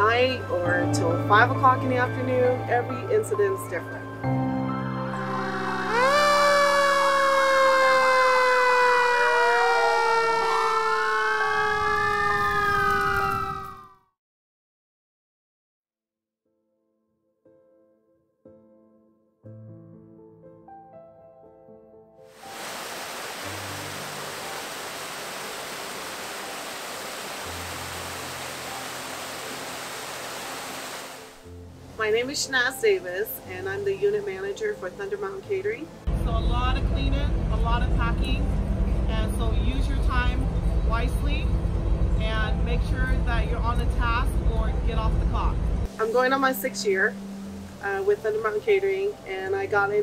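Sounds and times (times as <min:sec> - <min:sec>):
low background music notes: 0:00.0 - 0:07.8, 0:31.1 - 0:50.0
falling siren wail: 0:05.1 - 0:14.1
rising and falling siren: 0:05.1 - 0:14.1
warbling siren: 0:05.1 - 0:14.1
waterfall rushing: 0:22.4 - 0:31.5.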